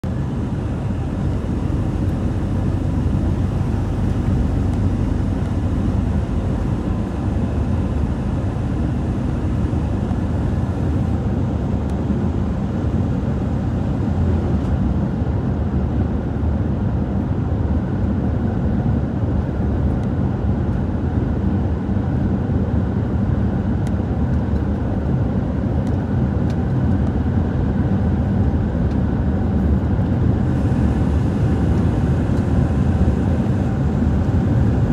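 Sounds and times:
road rumble: 0:00.0 - 0:16.5, 0:23.6 - 0:34.9
vehicle engine drone: 0:00.0 - 0:34.9.

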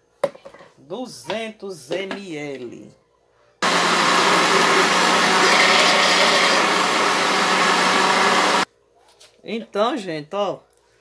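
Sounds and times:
electric blender running: 0:03.6 - 0:08.7.

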